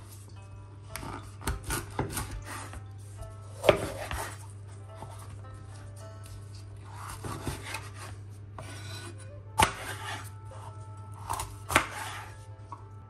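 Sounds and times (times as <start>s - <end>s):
knife slicing peppers: 1.0s - 2.8s, 3.5s - 5.3s, 6.2s - 12.4s.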